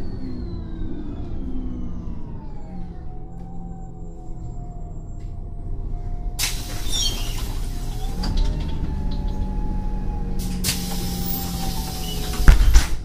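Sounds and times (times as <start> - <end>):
bus engine humming: 0.0 - 13.0
air hiss: 6.4 - 8.1, 10.5 - 12.8.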